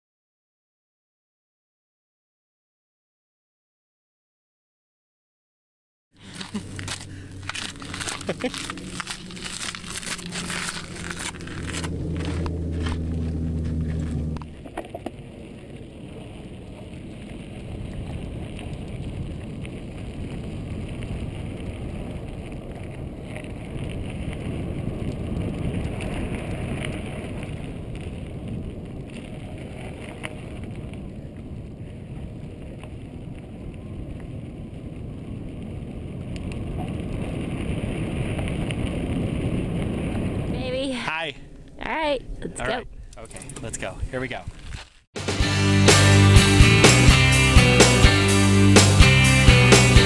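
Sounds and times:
short low hum: 6.2 - 14.8
bike tyres and frame rattling: 6.2 - 36.3
wind on microphone: 6.2 - 44.9.

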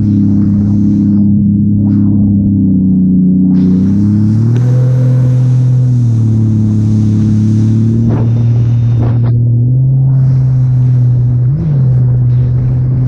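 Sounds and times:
jet ski engine drone: 0.0 - 13.0
short whooshes: 3.6 - 9.4.

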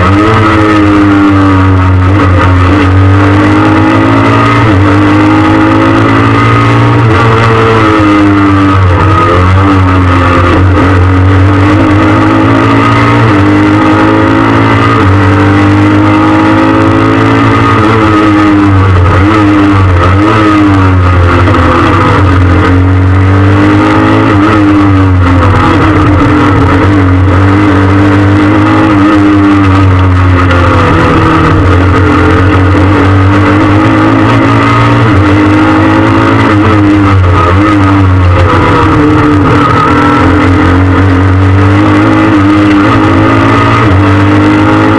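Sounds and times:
rally car engine revving: 0.0 - 44.9.

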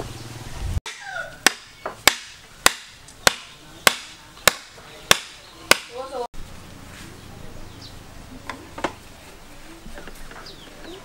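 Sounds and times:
wood knocking on bamboo pole: 0.9 - 6.0.

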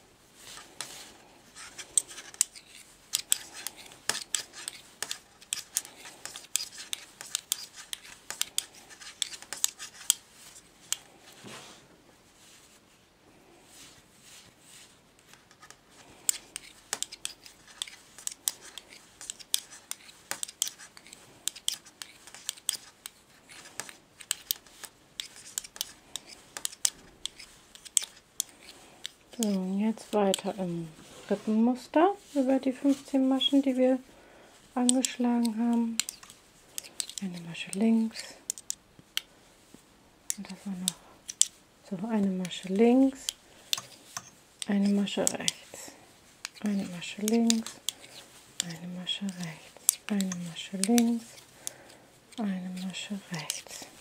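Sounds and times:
knitting needles clicking: 1.8 - 10.2, 15.3 - 30.6, 34.8 - 39.3, 40.3 - 45.8, 46.4 - 54.0.

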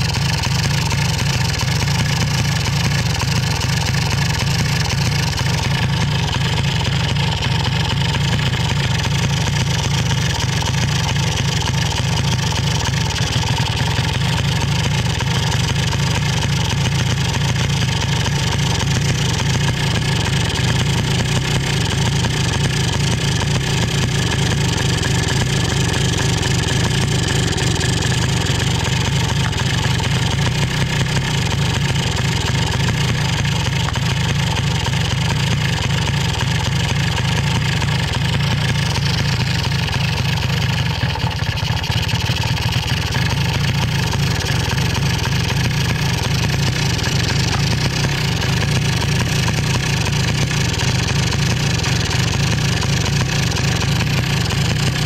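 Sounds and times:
two-stroke engine idling: 0.0 - 55.0.

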